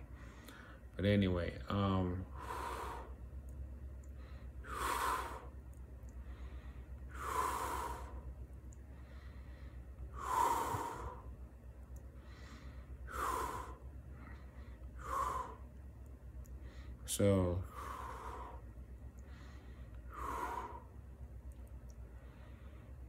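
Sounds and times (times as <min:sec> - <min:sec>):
person breathing close to microphone: 0:00.0 - 0:00.9, 0:02.3 - 0:03.2, 0:04.0 - 0:11.4, 0:12.1 - 0:15.7, 0:17.6 - 0:21.0, 0:22.1 - 0:23.0
steady low hum: 0:00.0 - 0:23.0.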